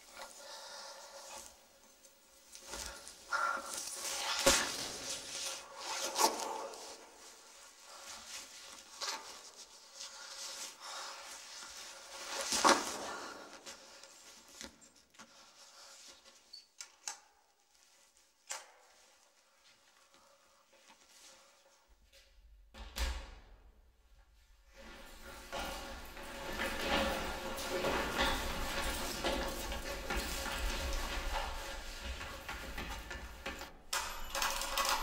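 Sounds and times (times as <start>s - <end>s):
clothing rustling: 1.2s - 16.5s, 24.3s - 35.0s.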